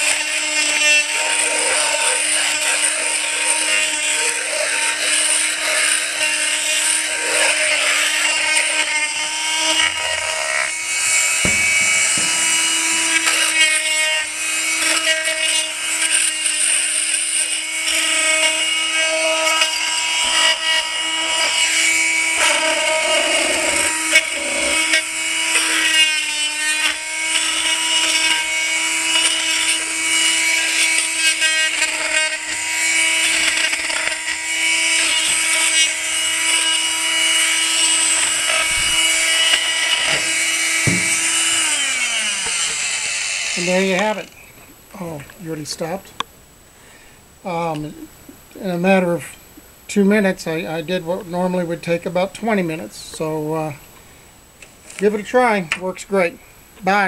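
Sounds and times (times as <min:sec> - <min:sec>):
multi-tool buzzing: 0:00.0 - 0:44.8.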